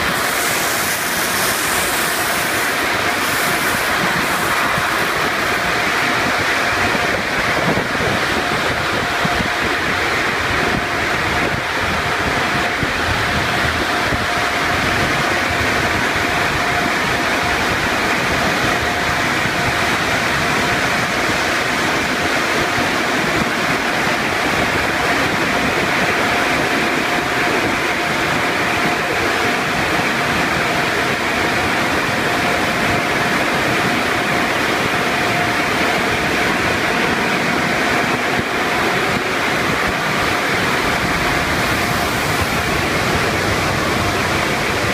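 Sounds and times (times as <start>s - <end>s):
water spraying: 0.0s - 7.1s
thin steady machine whine: 0.0s - 44.9s.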